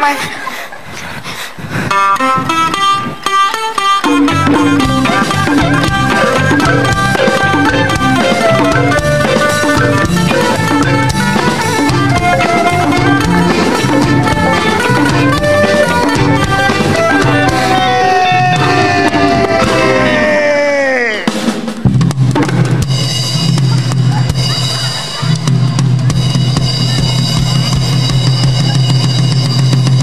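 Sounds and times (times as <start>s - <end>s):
live band playing up-tempo tune: 1.9s - 30.0s
steady drum beat: 1.9s - 30.0s.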